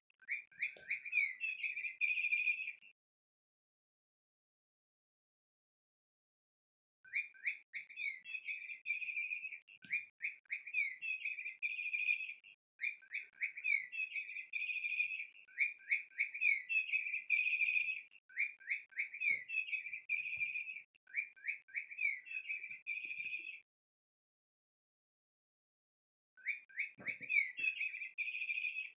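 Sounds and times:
electronic toy bird call: 0:00.2 - 0:02.9, 0:07.1 - 0:23.6, 0:26.4 - 0:28.9.

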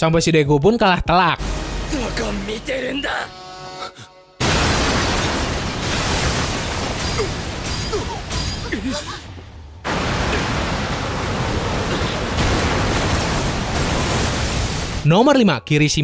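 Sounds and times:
rushing wind and debris: 0:04.4 - 0:15.2.

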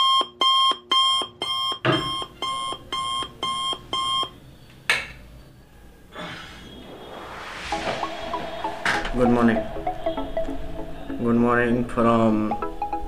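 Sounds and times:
alarm beeping: 0:06.6 - 0:12.0.

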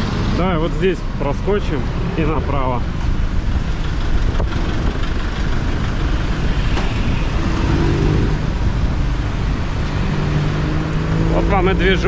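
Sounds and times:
motorbikes and cars passing: 0:00.0 - 0:12.0
steady engine hum: 0:00.0 - 0:12.0.

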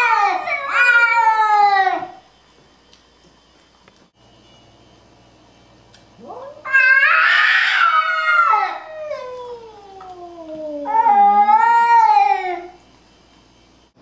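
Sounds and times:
cats yowling: 0:00.0 - 0:02.2, 0:06.2 - 0:12.8.

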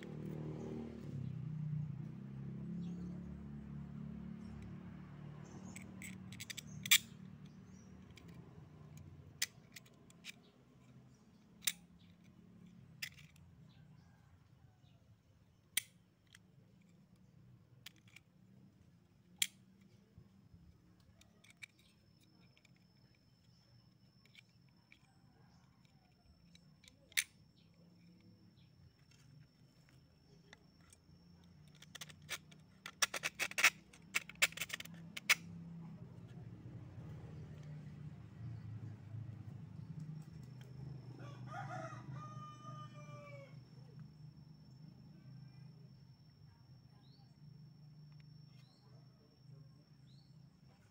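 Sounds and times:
small metal parts clicking: 0:05.4 - 0:13.8, 0:15.6 - 0:36.3.

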